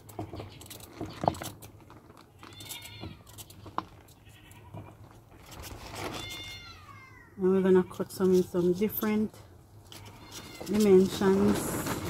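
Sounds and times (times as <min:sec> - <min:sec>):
high animal cry: 0:06.1 - 0:07.3.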